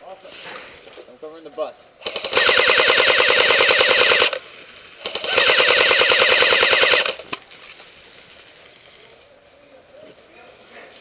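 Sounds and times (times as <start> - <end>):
airsoft rifle firing full auto: 2.0 - 4.4, 5.0 - 7.4.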